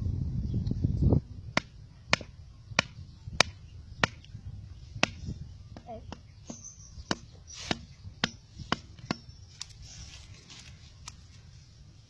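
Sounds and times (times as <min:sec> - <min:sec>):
knife chopping wooden stick: 0:06.1 - 0:09.3.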